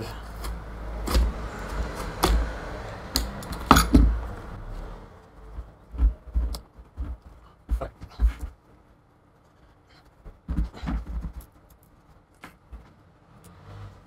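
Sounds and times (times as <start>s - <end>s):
low handling bumps: 5.4s - 8.6s.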